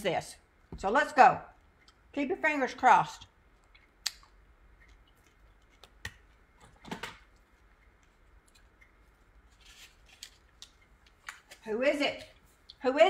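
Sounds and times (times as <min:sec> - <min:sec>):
soft rustle: 0:08.1 - 0:10.7.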